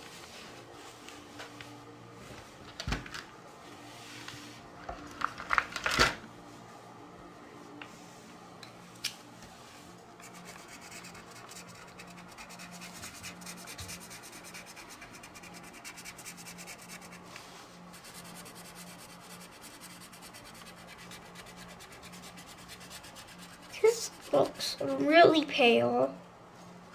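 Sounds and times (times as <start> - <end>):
marker scratching on paper: 10.2 - 17.3, 17.9 - 24.7.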